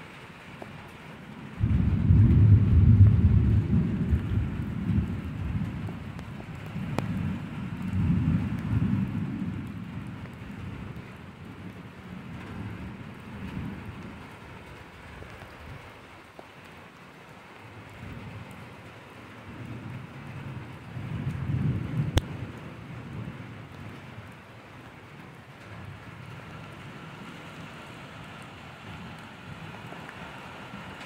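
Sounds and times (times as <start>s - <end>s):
steady rain: 0.0s - 31.0s
thunder rumbling: 1.6s - 14.9s, 19.4s - 24.4s.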